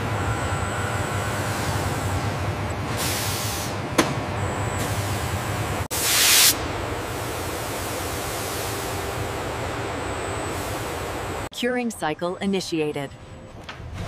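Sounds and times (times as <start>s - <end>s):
machinery humming: 0.0s - 11.5s
air hissing: 5.9s - 6.6s.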